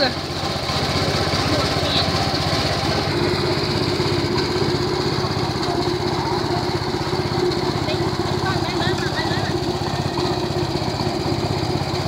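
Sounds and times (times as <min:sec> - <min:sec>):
small petrol engine running: 0:00.0 - 0:12.0.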